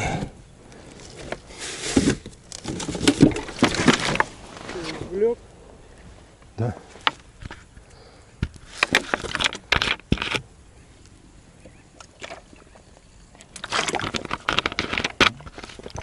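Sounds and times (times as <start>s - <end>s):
rustling and scraping in a boat: 0.0s - 16.0s.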